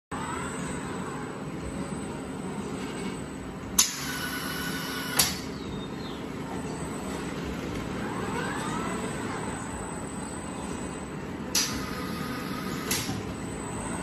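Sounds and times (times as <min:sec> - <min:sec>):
machinery hum: 0:00.1 - 0:14.0
robot arm whine: 0:02.8 - 0:05.6, 0:08.0 - 0:14.0.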